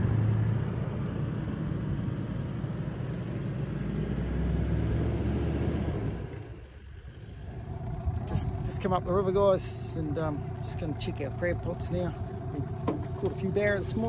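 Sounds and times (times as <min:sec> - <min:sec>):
low engine hum: 0:00.0 - 0:14.0.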